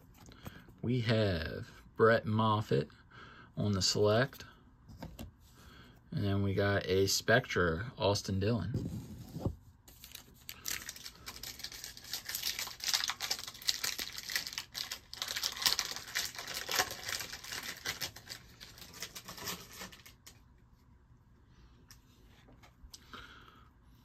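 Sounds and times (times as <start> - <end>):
cards and foil wrapper crackling: 9.9 - 20.4.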